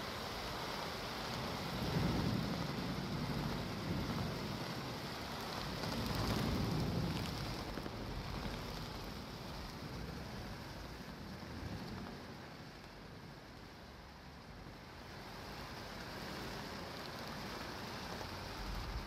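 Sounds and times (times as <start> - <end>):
rain hissing: 0.0 - 19.0
thunder rumbling: 1.6 - 10.3, 18.5 - 19.0.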